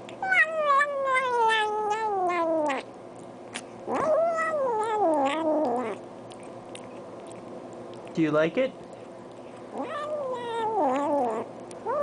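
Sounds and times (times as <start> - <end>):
cat meowing: 0.2 - 2.8, 3.9 - 6.0, 9.7 - 12.0.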